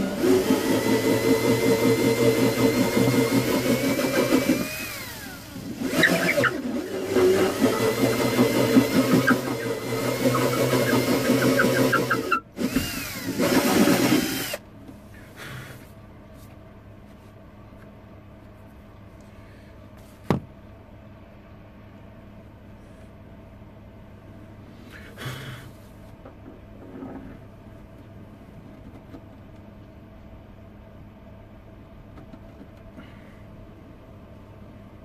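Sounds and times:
cordless drill boring into wood: 0.0 - 14.6.

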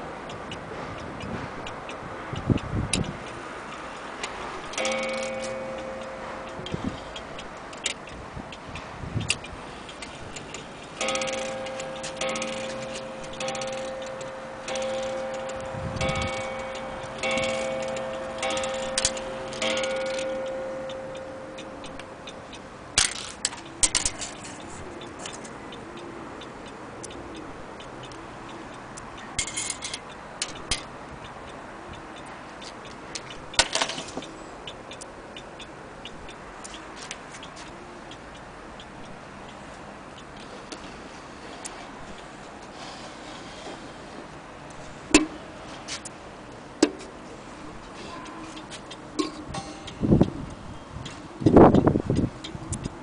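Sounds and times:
clock ticking: 0.0 - 40.9, 41.6 - 42.7, 44.2 - 53.0
sharp clicks and knocks: 0.3 - 25.6, 26.6 - 31.4, 32.2 - 34.3, 43.7 - 46.2, 46.8 - 53.0
clock striking: 2.9 - 8.2, 9.2 - 24.4, 47.7 - 52.6.

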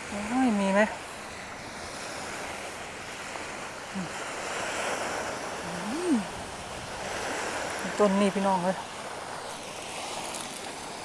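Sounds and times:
surf washing on shore: 0.0 - 11.0
wind on microphone: 4.6 - 8.2
woman wordless vocal sounds: 5.6 - 6.4.

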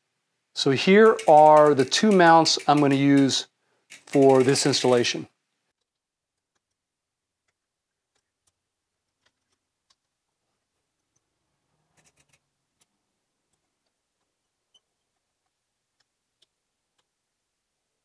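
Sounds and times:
hex key clicks on bolts: 1.1 - 5.1.

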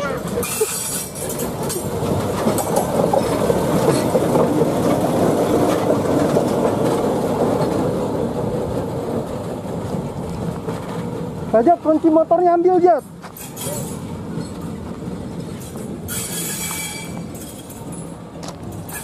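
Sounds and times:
diesel locomotive passing: 0.0 - 19.0
wheels running on rails: 0.0 - 19.0.

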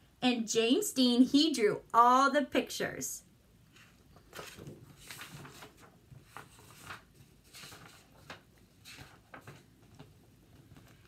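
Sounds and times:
book pages turning: 3.7 - 11.0.

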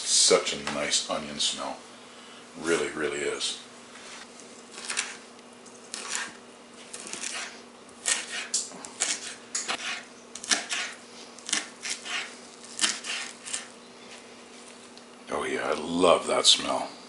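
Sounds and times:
knife chopping on cutting board: 5.9 - 13.7.

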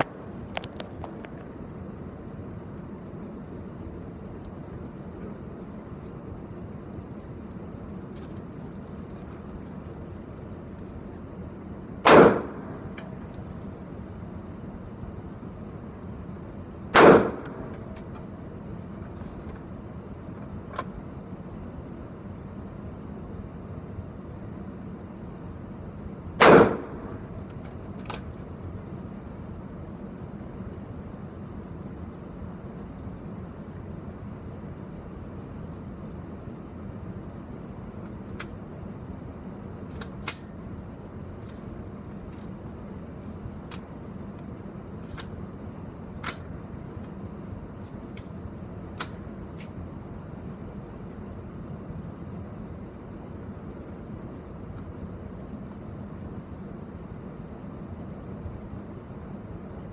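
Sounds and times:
steady low hum: 0.0 - 59.9
rifle shot echoing indoors: 12.0 - 13.0, 16.9 - 17.9, 26.4 - 27.2.

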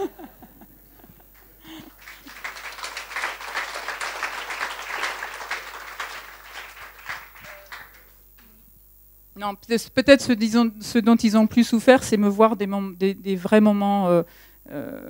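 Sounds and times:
audience applauding: 1.1 - 8.6.

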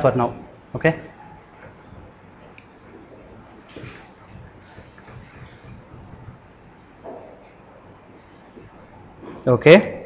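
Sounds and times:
faint room noise: 0.0 - 10.0
high-pitched squeaks: 3.7 - 5.7.

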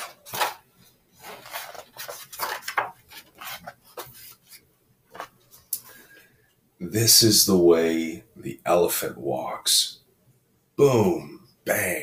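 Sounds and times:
book pages rustling: 0.0 - 5.7.

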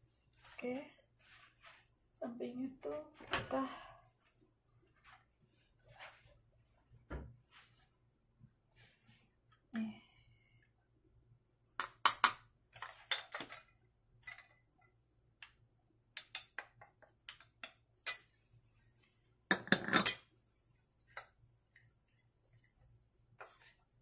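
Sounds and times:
dishes clattering: 19.5 - 20.3.

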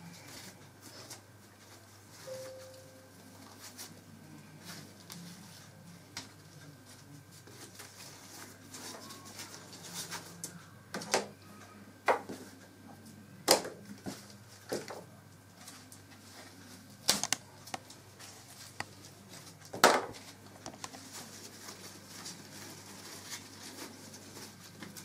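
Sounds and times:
corn husks rustling: 20.2 - 25.0.

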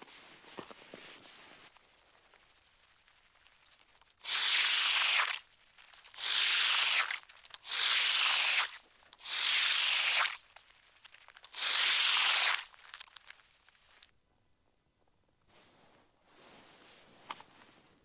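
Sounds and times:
ice auger scraping ice: 3.6 - 10.5, 11.1 - 14.0.

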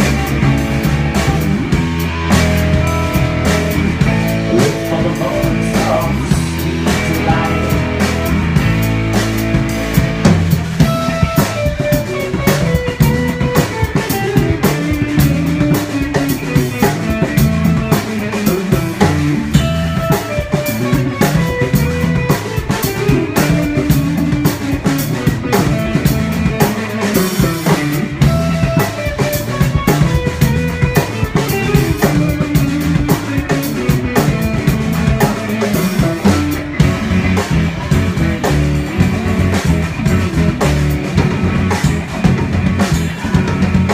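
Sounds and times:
drum kit: 0.0 - 43.9
electric guitar: 0.0 - 43.9
plucked upright bass: 19.0 - 20.1, 36.2 - 43.9.

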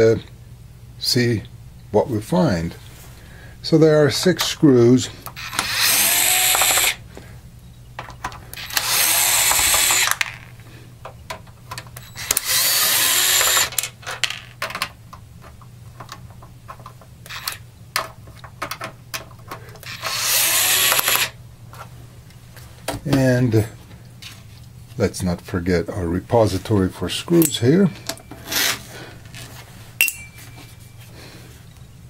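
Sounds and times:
electric screwdriver whirring: 5.3 - 7.0, 8.6 - 10.2, 12.1 - 13.8, 17.3 - 17.6, 19.8 - 21.4
handling clicks and taps: 8.0 - 8.4.

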